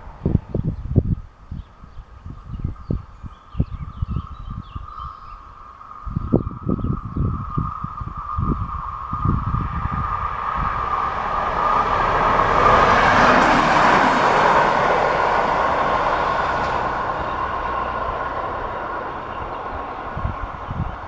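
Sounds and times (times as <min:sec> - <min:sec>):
passing vehicle noise: 0:08.2 - 0:21.0.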